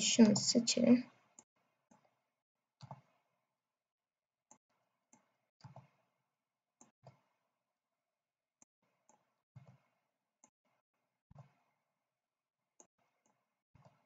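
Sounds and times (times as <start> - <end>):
mouse and keyboard clicks: 2.8 - 3.1.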